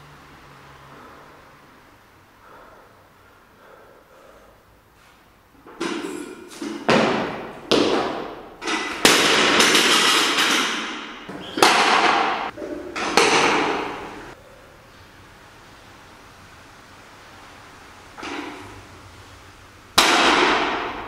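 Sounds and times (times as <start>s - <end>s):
barbell dropped on platform: 5.8s - 14.1s, 20.0s - 21.0s.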